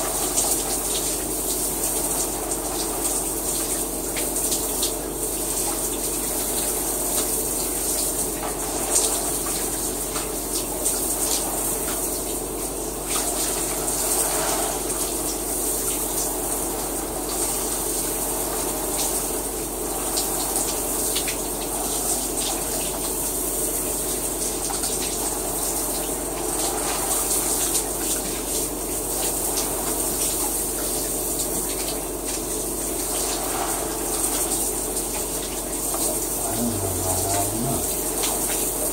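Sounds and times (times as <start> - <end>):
shower water spraying: 0.0 - 38.9.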